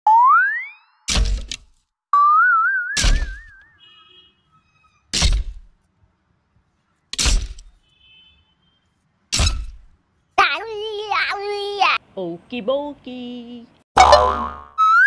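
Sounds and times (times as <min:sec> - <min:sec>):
whistle-like cartoon tone: 0:14.8 - 0:15.0.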